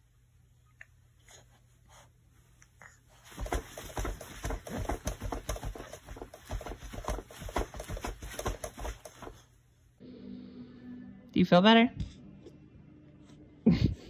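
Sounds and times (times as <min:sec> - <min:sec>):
baby's feet kicking seat: 0:03.3 - 0:09.4.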